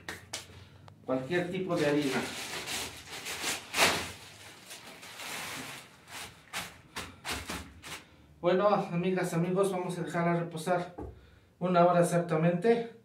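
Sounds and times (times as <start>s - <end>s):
rustling: 1.7s - 8.1s
knocks of objects handled: 11.0s - 11.2s.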